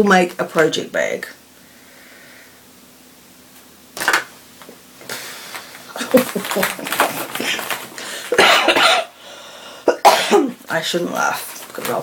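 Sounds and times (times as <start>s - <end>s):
woman laughing: 5.9s - 7.8s
woman coughing: 8.3s - 9.2s, 9.8s - 10.6s.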